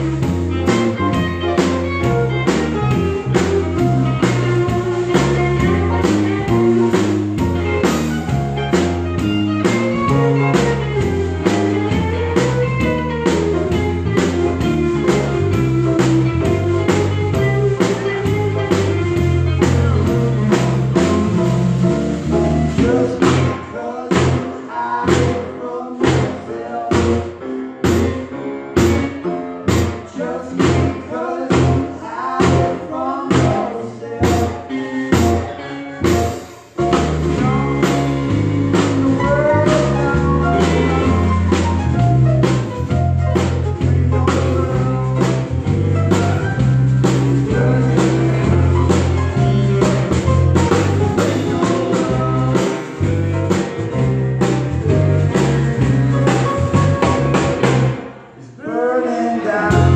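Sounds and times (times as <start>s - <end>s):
electric bass: 0.0s - 58.6s, 59.6s - 59.9s
live band playing: 0.0s - 59.9s
punchy rhythmic hits: 36.1s - 58.4s.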